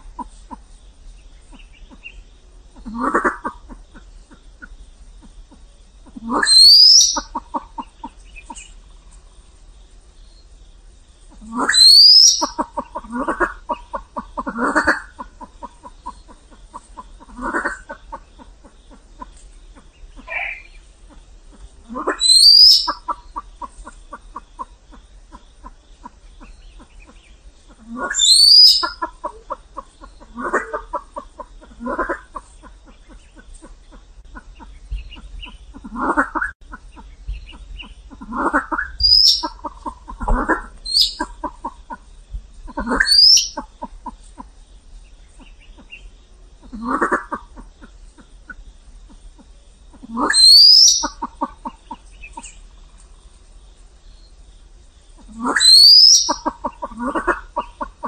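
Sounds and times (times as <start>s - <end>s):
pheasant clucking: 0.0s - 9.3s, 11.3s - 53.2s, 55.1s - 58.0s
pheasant squealing: 6.1s - 8.7s, 11.4s - 18.2s, 21.8s - 24.0s, 26.4s - 32.4s, 34.6s - 42.0s, 42.7s - 43.9s, 49.1s - 52.6s, 55.3s - 58.0s.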